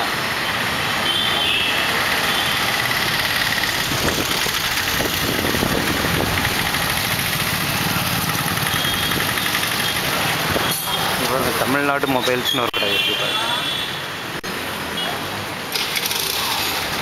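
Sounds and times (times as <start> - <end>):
street traffic: 0.0 - 17.0
motorbike engine running: 3.2 - 10.2.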